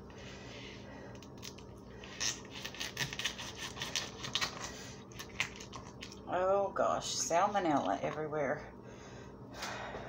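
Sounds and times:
knife cutting through plastic wrap: 2.1s - 4.6s.

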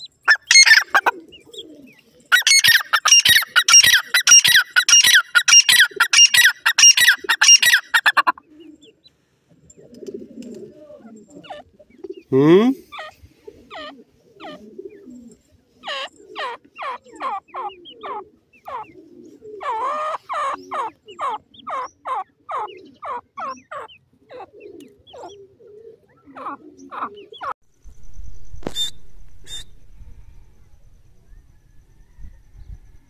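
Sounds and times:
francolins calling: 0.0s - 9.1s, 12.9s - 27.6s
low rumble: 27.7s - 33.0s.

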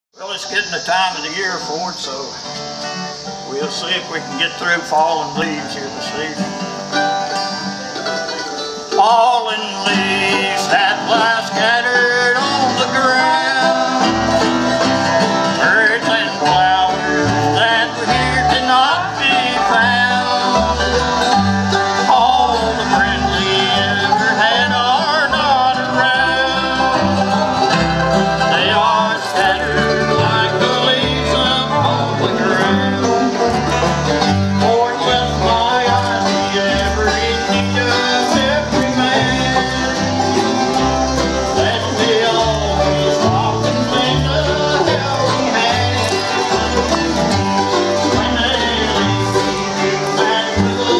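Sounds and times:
banjo: 0.2s - 50.9s
strummed acoustic guitars: 0.2s - 50.9s
upright bass line: 3.6s - 50.9s.

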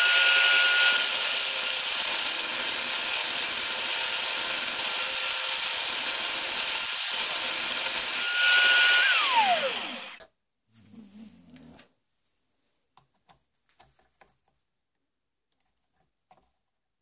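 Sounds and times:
electric drill running: 0.0s - 10.2s.

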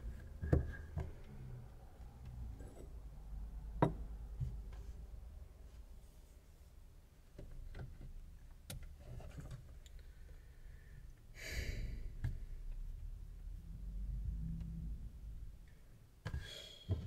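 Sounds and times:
breathy sigh: 11.4s - 12.2s, 16.4s - 17.0s.

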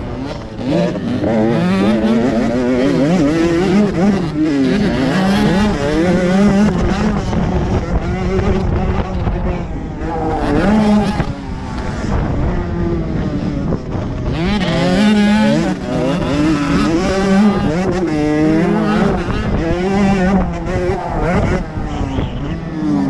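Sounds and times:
dirt bike engine revving: 0.0s - 23.0s
rush of noise: 5.2s - 23.0s.

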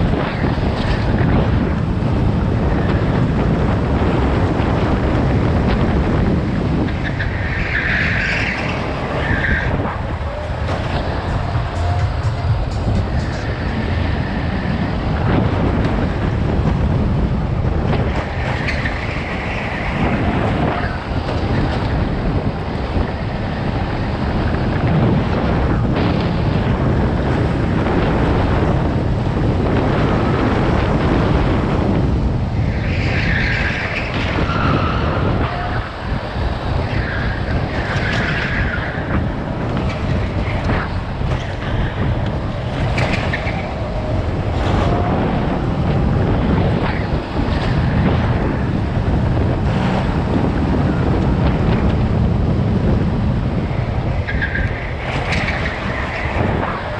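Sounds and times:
go-kart engine: 0.0s - 56.9s
wind rumble on microphone: 0.0s - 56.9s.

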